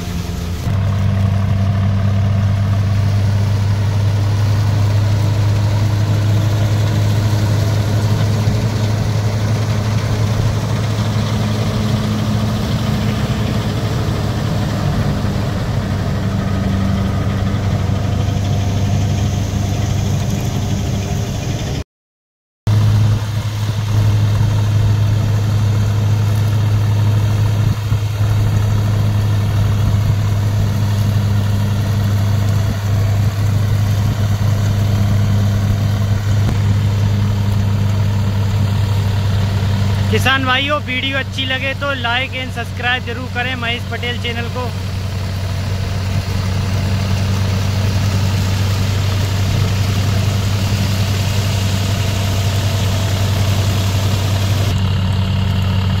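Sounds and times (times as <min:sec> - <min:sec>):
straw reaper drum and blower: 0:00.0 - 0:21.8, 0:22.7 - 0:56.0
tractor diesel engine under load: 0:00.0 - 0:21.8, 0:22.7 - 0:56.0.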